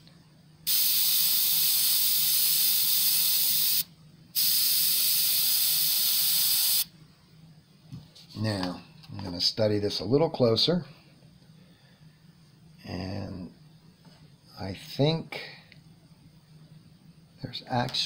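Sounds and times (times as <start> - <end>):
airbrush hissing: 0.7 - 6.9.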